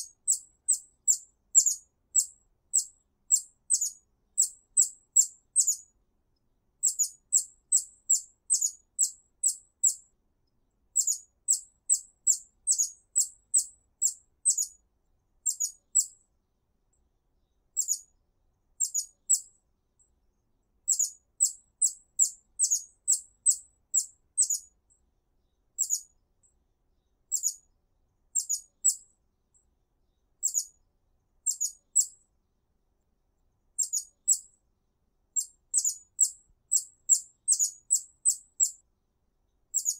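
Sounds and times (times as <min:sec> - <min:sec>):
hummingbird chip calls: 0:00.0 - 0:05.8, 0:06.8 - 0:10.0, 0:11.0 - 0:14.7, 0:15.5 - 0:16.1, 0:18.8 - 0:19.4, 0:20.9 - 0:24.6, 0:25.8 - 0:26.0, 0:27.3 - 0:27.6, 0:28.4 - 0:29.0, 0:30.4 - 0:30.7, 0:31.5 - 0:32.1, 0:33.8 - 0:34.4, 0:35.4 - 0:38.8.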